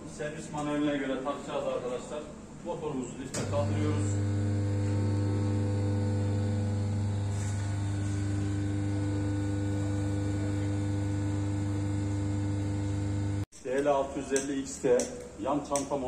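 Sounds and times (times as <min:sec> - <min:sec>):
lift motor humming: 0:03.4 - 0:13.5.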